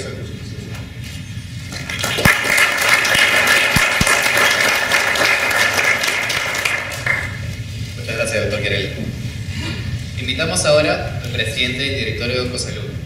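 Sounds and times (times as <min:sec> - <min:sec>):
audience applauding: 0:01.7 - 0:07.4.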